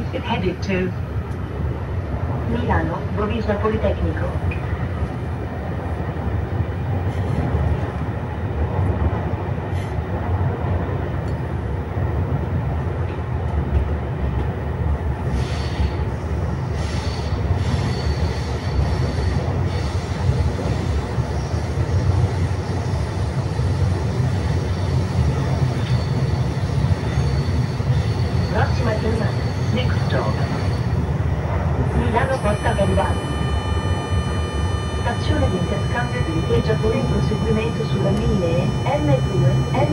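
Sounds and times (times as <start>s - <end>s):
train wheels rumbling on track: 0.0s - 39.9s.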